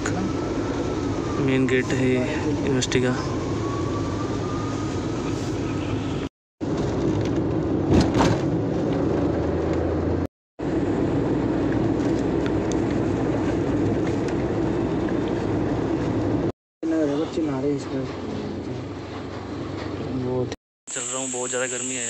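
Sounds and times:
road and engine noise inside car: 0:05.5 - 0:20.6
thump: 0:07.9 - 0:08.5.

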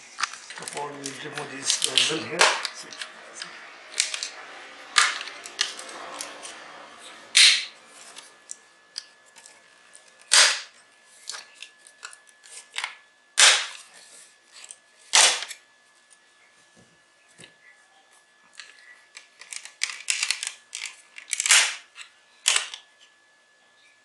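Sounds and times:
plastic clips snapping loose: 0:19.4 - 0:21.8.

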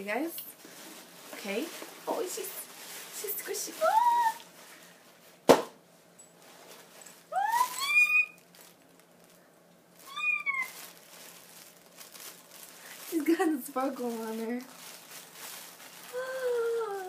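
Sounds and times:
woman squealing excitedly: 0:07.3 - 0:08.4, 0:10.1 - 0:10.8.

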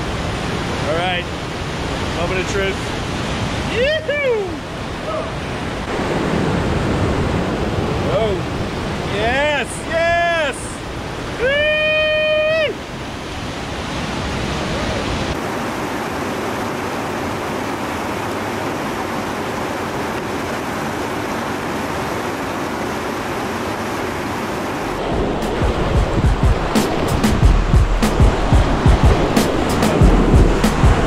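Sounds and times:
water rushing over boulders: 0:00.0 - 0:31.0
person yelling: 0:03.7 - 0:05.4, 0:09.6 - 0:10.8, 0:11.4 - 0:12.8.

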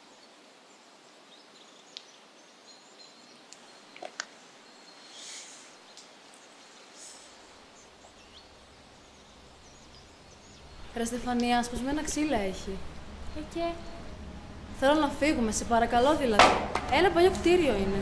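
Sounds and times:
faint outdoor ambience: 0:00.0 - 0:18.0
sharp snaps and ticks: 0:01.9 - 0:02.2, 0:03.5 - 0:04.4, 0:05.9 - 0:06.2, 0:11.3 - 0:11.7.

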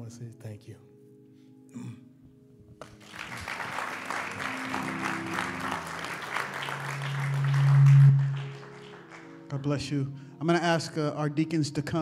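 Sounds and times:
congregation applauding: 0:02.8 - 0:10.0
low held organ note: 0:04.3 - 0:09.1.

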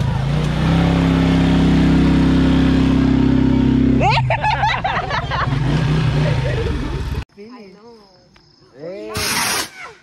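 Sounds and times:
vehicle engine running: 0:00.0 - 0:07.2.

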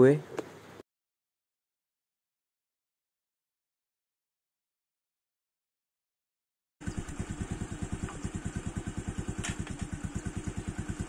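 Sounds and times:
motorcycle engine idling: 0:06.8 - 0:11.0.

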